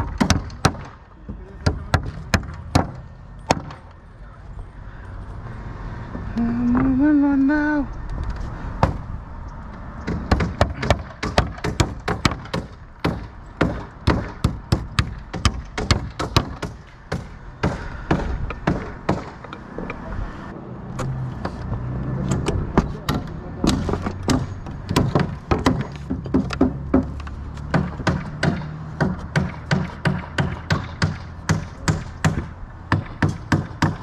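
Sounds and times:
hammer striking nails: 0:00.0 - 0:01.0, 0:01.6 - 0:03.8, 0:10.0 - 0:19.6, 0:22.4 - 0:34.0.

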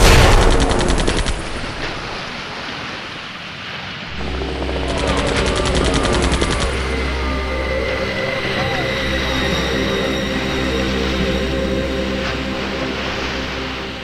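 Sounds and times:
machine-gun fire: 0:00.0 - 0:01.8
helicopter rumble: 0:04.1 - 0:13.6.

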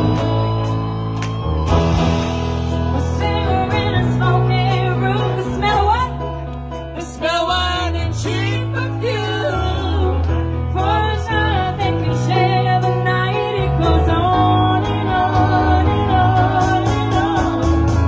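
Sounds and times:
instrumental accompaniment with bass: 0:00.0 - 0:18.0
woman singing through pa: 0:03.0 - 0:06.2, 0:07.0 - 0:18.0.

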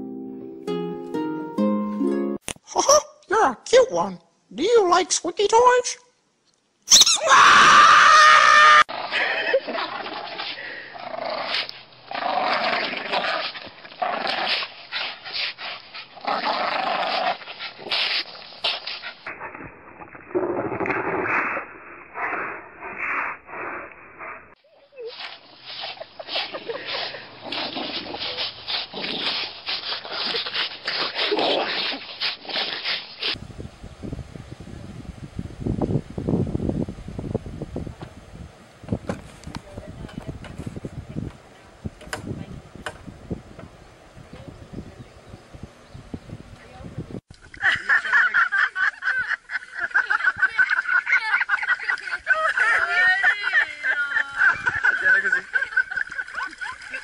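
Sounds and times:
people laughing: 0:26.0 - 0:27.4, 0:47.5 - 0:57.0.

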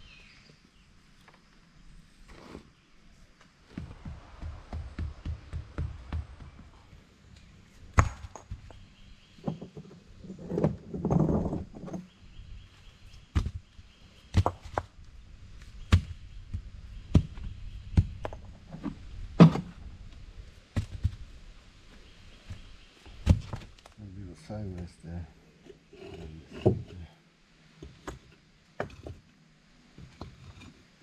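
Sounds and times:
bricks knocked into place: 0:08.0 - 0:08.8.

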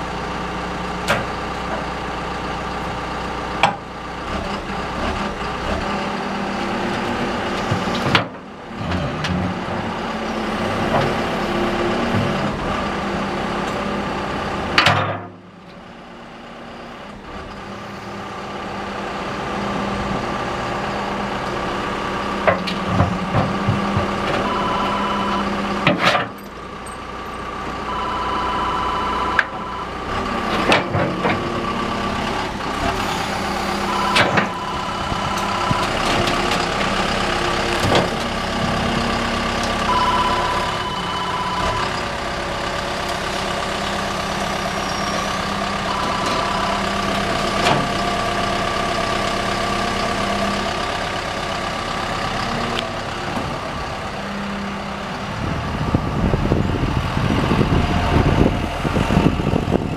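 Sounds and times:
excavator diesel engine running: 0:00.0 - 0:59.9
hydraulic whine: 0:44.2 - 0:48.5.

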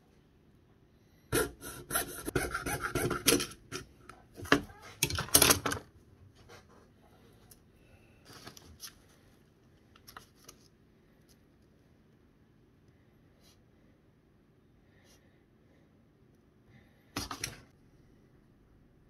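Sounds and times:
saw rasping through metal: 0:01.4 - 0:03.5.

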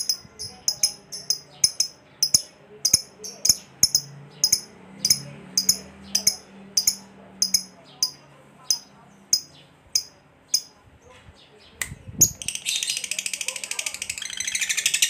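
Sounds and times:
lovebird chirping: 0:00.0 - 0:10.8.

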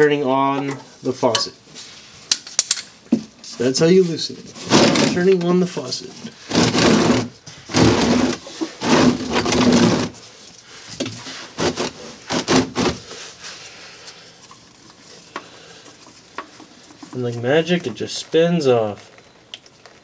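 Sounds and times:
plastic pan scraping and clattering: 0:04.5 - 0:05.5, 0:06.2 - 0:10.2, 0:11.0 - 0:13.1.

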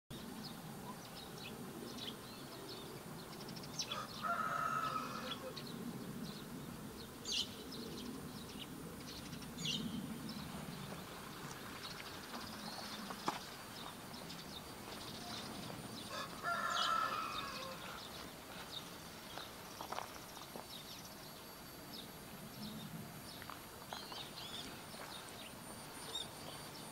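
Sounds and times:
small birds chirping: 0:00.1 - 0:26.9
rooster crowing: 0:03.9 - 0:05.6, 0:16.1 - 0:18.1.

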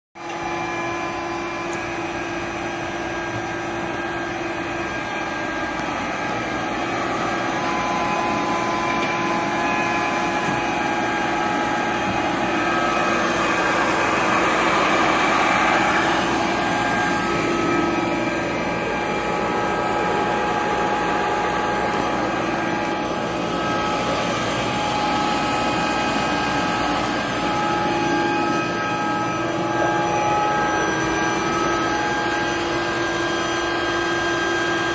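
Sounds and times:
grinder humming and whining: 0:00.2 - 0:34.9.

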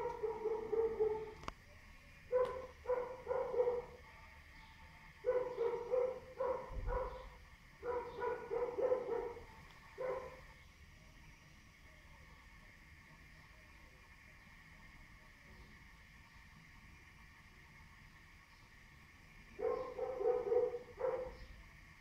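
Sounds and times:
dog barking: 0:00.0 - 0:01.4, 0:02.3 - 0:04.0, 0:05.2 - 0:10.4, 0:19.6 - 0:21.5.

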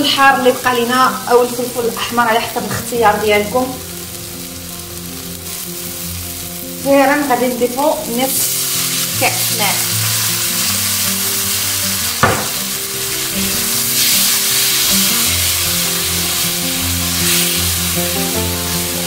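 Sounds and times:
background music sustained notes: 0:00.0 - 0:19.0
sauce sizzling in frying pan: 0:00.0 - 0:19.0
short knock: 0:12.2 - 0:12.6.

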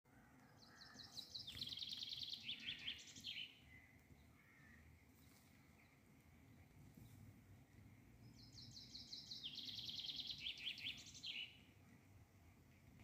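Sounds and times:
songbird trilling: 0:00.6 - 0:03.6, 0:08.3 - 0:11.6.

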